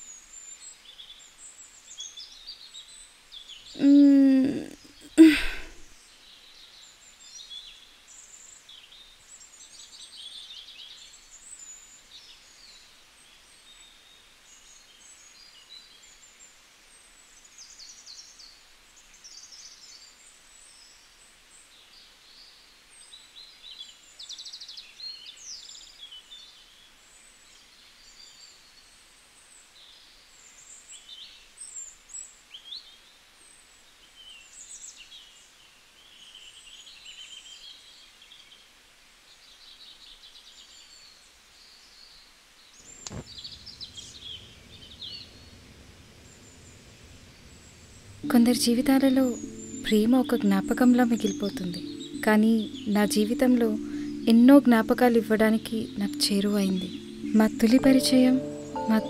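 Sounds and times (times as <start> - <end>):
faint steady hiss: 0.0 - 59.0
small birds chirping: 39.4 - 59.0.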